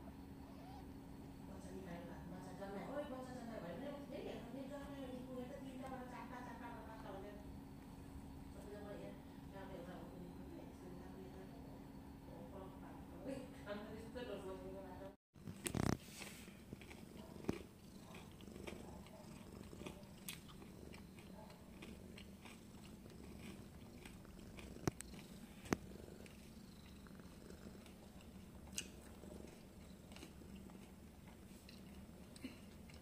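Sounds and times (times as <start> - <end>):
cat purring: 0.1 - 6.6, 15.7 - 33.0.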